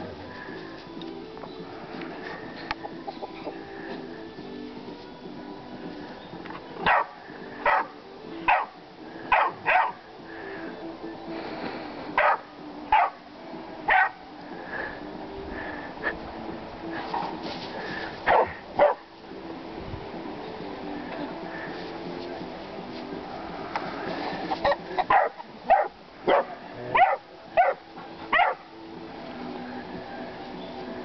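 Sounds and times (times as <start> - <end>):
puppy barking: 6.8 - 10.0, 12.2 - 13.2, 13.9 - 14.2, 18.3 - 19.0, 24.6 - 28.6.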